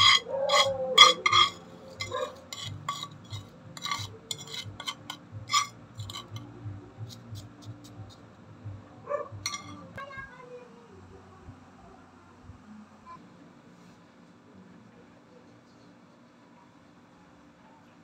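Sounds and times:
metal spoon scraping a pan: 0.0 - 8.0, 9.4 - 9.9.

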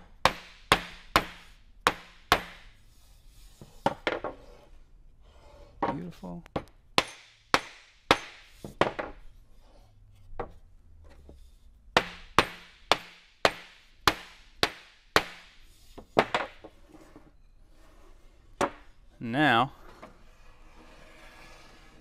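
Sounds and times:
mallet knocking wood: 12.0 - 15.5.

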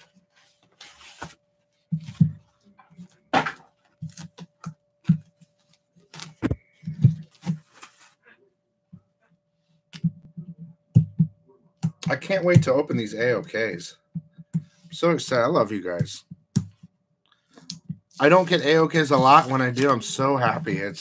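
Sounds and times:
cardboard mailer rustling: 18.2 - 20.6.

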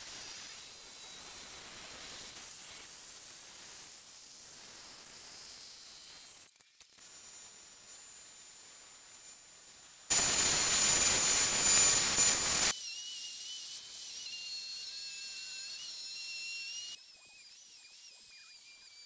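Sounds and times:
spindle sander running: 10.1 - 12.7.

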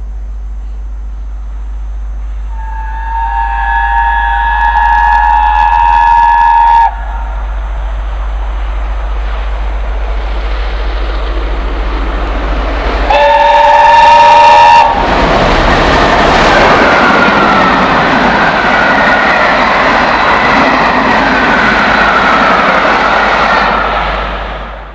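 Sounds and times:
steam train passing: 1.4 - 24.9
steam locomotive whistle: 2.3 - 7.5, 13.1 - 15.1.

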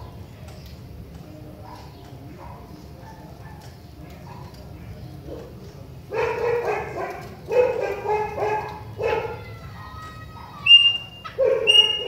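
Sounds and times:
blackbird singing: 10.6 - 12.0.

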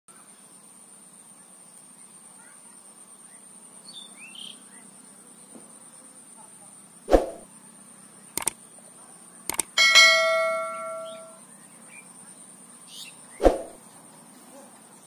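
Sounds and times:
bird chirps: 9.4 - 13.8.

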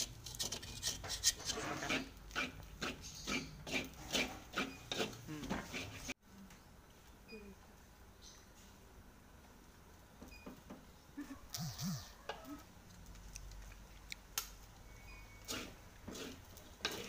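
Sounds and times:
spoon and spatula scraping wok: 0.0 - 6.2, 15.1 - 17.0
scraping stuck rice from wok: 15.4 - 17.0.

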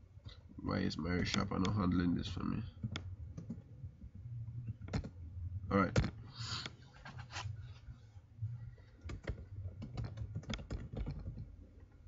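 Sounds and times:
steady low hum: 0.0 - 12.0
computer keyboard typing: 2.8 - 3.6, 4.8 - 5.2, 9.0 - 11.5.

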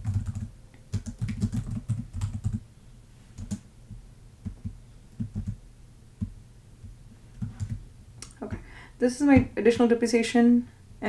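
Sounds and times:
computer keyboard typing: 0.0 - 2.6, 3.4 - 3.6, 4.4 - 5.6, 7.4 - 7.8.

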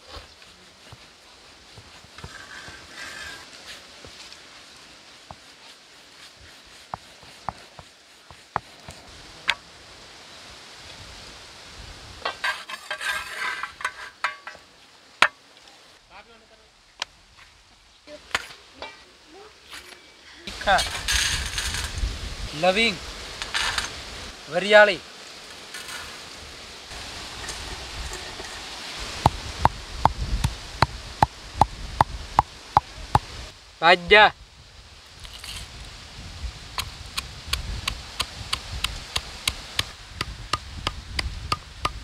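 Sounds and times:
metal tongs scraping on griddle: 2.2 - 3.8, 12.3 - 14.6, 23.4 - 24.0, 25.7 - 26.2, 27.3 - 28.8.

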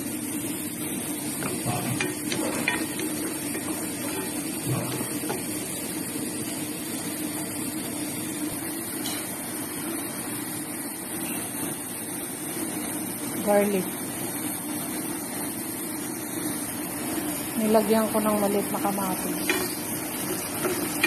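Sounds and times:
onion sizzling in hot oil: 0.0 - 21.0
wooden spoon scraping pot: 1.4 - 5.7, 19.2 - 21.0.

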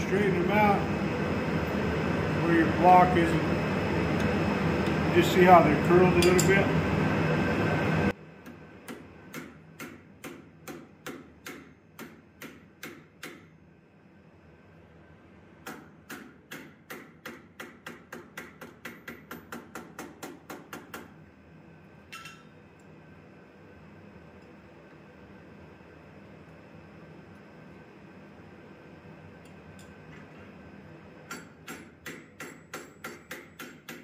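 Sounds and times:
ringing metal clink: 6.2 - 6.6
hammer tapping hot steel: 6.2 - 6.7, 8.4 - 13.5, 15.6 - 21.1, 22.1 - 22.6, 31.2 - 34.0.

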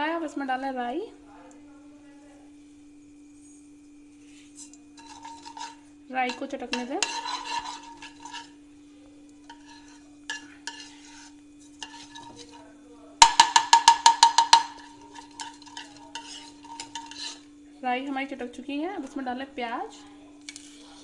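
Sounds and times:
seeds crackling in hot oil: 3.8 - 17.8, 20.3 - 21.0
metal spatula stirring: 4.4 - 8.6, 9.3 - 17.5, 20.5 - 21.0
spatula ringing against pan: 5.0 - 8.6, 9.4 - 12.6, 13.2 - 17.5.

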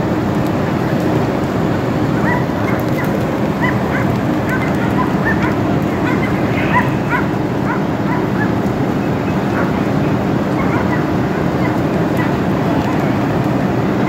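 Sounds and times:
fire engine rumbling: 0.0 - 14.0
dog yipping and whimpering: 2.2 - 8.6, 10.5 - 12.4.

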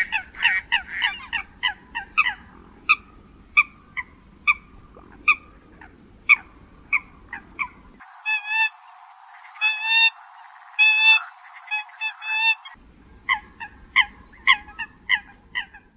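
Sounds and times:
coot calls: 0.0 - 8.8.

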